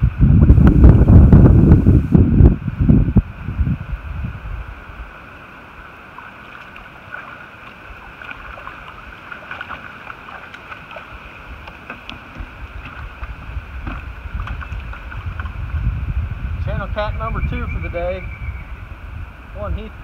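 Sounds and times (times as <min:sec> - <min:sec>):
wind buffeting microphone: 0:00.0 - 0:05.2, 0:10.7 - 0:20.0
water splashes: 0:04.7 - 0:16.2.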